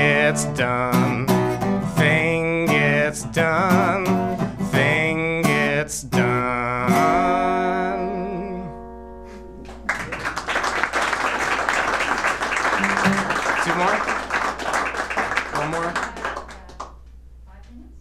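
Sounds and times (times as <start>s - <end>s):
man singing: 0.0s - 8.9s
strummed acoustic guitar: 0.0s - 9.6s, 12.8s - 13.9s
audience applause: 9.6s - 17.0s.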